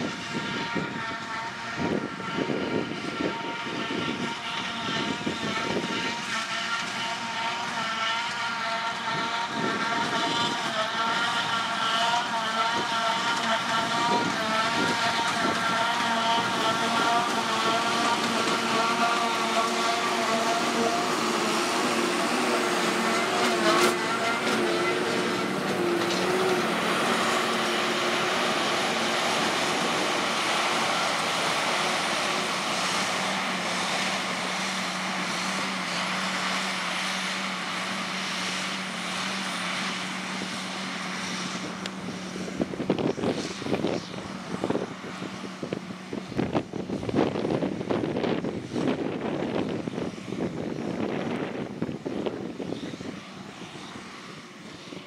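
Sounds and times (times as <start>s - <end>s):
wind buffeting microphone: 0.0s - 6.2s, 12.6s - 34.6s, 41.4s - 55.0s
forage harvester whine: 0.0s - 55.0s
tractor engine hum: 0.0s - 55.0s.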